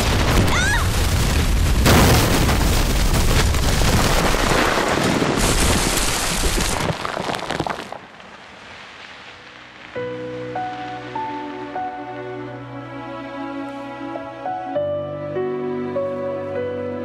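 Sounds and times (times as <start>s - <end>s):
heavy explosion blast: 0.0s - 6.9s
debris pouring down: 0.0s - 10.1s.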